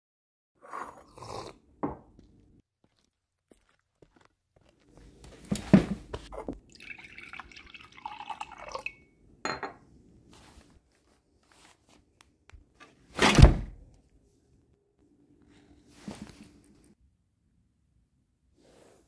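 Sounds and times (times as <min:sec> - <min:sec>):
liquid trickling and dripping: 0:06.5 - 0:09.1.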